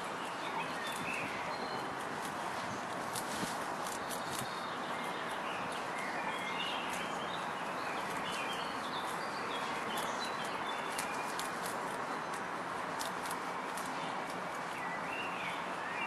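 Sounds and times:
rabbits chewing leaves: 0.0s - 16.0s
bird chirps: 4.0s - 12.4s.

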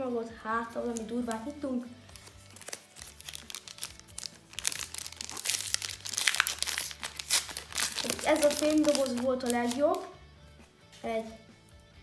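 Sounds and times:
foil pack tearing and crinkling: 2.1s - 10.0s.

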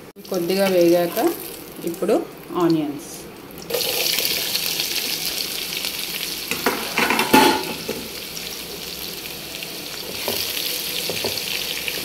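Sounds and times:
onions sizzling in hot oil: 0.2s - 12.0s.

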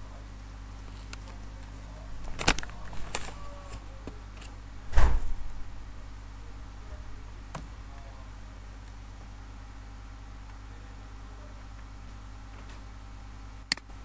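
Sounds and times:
steady low hum: 0.0s - 14.0s
heavy thump: 4.9s - 5.5s.

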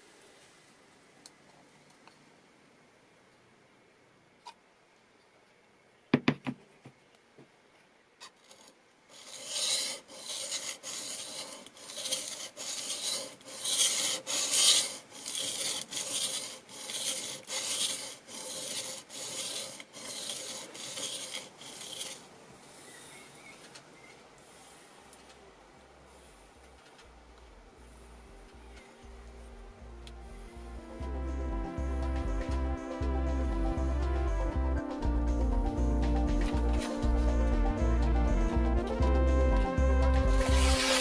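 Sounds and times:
blade rasping on sharpening stone: 8.4s - 22.3s, 40.4s - 41.0s.

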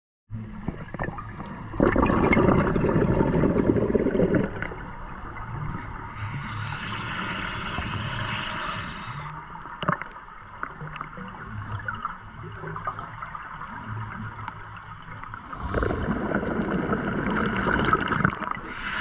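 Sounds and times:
exhaled bubbles underwater: 0.4s - 19.0s
regulator inhale hiss: 4.8s - 9.9s, 13.7s - 14.8s, 18.6s - 19.0s.

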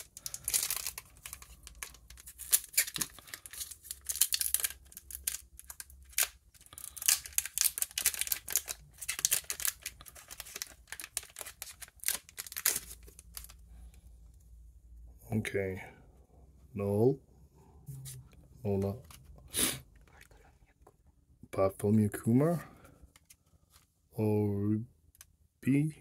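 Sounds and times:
wrapper crinkling and tearing: 0.0s - 13.7s.

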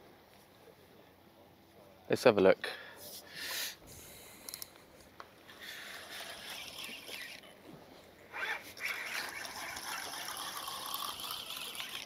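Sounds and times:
fishing reel whirring: 5.5s - 7.5s, 8.3s - 12.0s.

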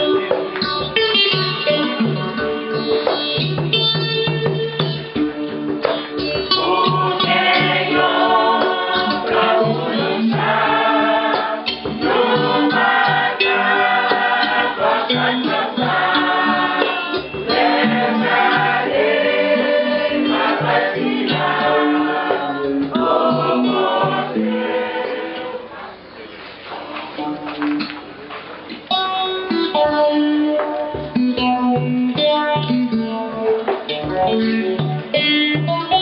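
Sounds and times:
instrumental accompaniment: 0.0s - 26.0s, 27.2s - 36.0s
choir singing a hymn: 6.5s - 26.1s
repeating bass line: 6.6s - 25.6s.

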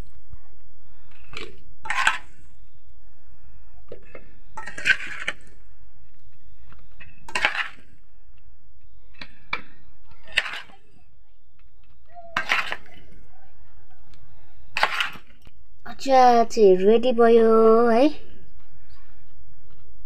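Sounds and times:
spoon scraping a steel bowl: 1.8s - 2.5s, 4.6s - 5.6s, 7.3s - 7.9s, 12.4s - 13.0s.

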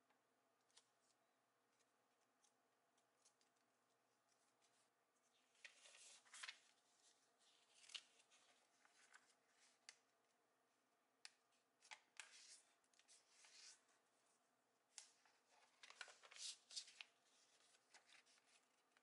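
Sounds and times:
paper rustling and crinkling: 5.5s - 9.8s, 15.0s - 19.0s.

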